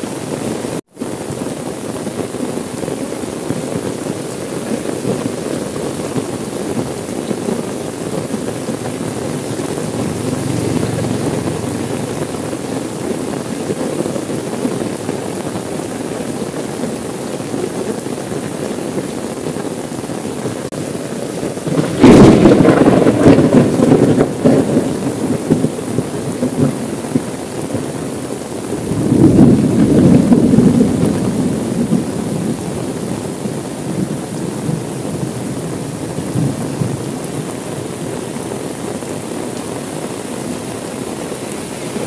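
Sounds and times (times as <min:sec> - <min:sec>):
rain falling on a car: 0:00.0 - 0:42.0
thunder clap and rumbling: 0:04.5 - 0:16.3, 0:21.2 - 0:37.6.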